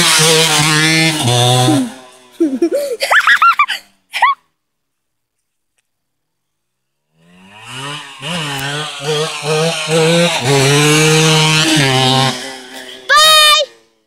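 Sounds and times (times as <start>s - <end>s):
motorcycle accelerating past: 0.0s - 2.8s, 7.0s - 14.0s.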